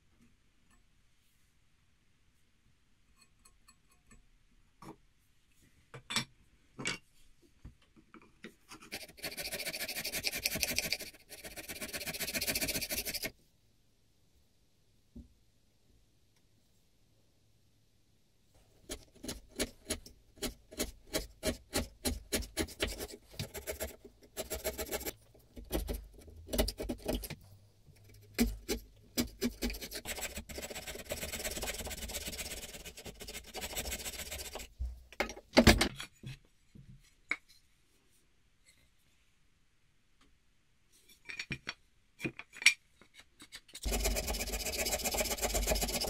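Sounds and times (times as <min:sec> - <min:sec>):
chisel paring and scraping wood: 0:18.9 - 0:27.4, 0:28.0 - 0:34.6.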